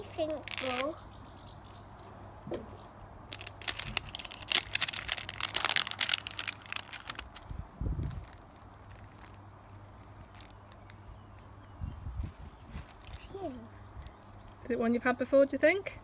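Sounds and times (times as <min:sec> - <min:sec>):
plastic wrapping crinkling and tearing: 0:00.0 - 0:00.9, 0:03.3 - 0:11.1, 0:12.2 - 0:14.4.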